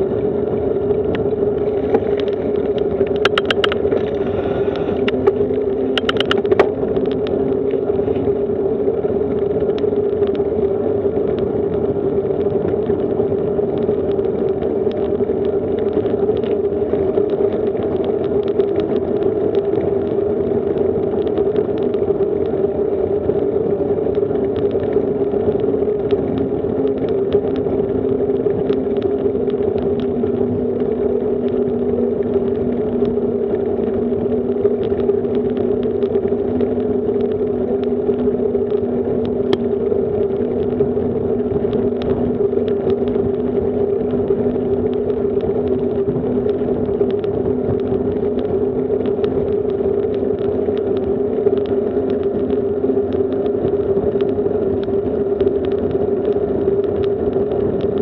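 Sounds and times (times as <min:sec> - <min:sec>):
bicycle tyres rolling on asphalt: 0:00.0 - 0:58.0
wind noise: 0:00.0 - 0:58.0
small rattling clicks: 0:01.0 - 0:07.4.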